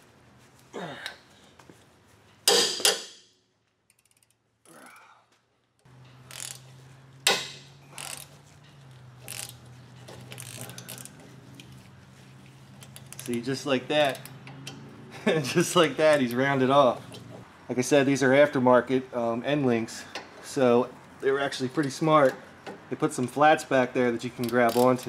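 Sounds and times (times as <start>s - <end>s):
ratcheting wrench clicking: 3.7s - 4.4s, 6.0s - 11.8s, 12.8s - 14.8s, 24.3s - 25.0s
steel wrenches clinking: 5.9s - 11.9s, 12.7s - 14.9s, 24.2s - 25.0s.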